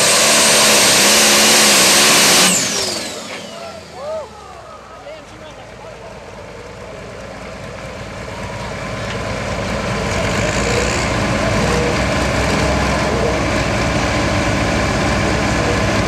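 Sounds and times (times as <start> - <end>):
tractor diesel engine running: 0.0 - 16.0.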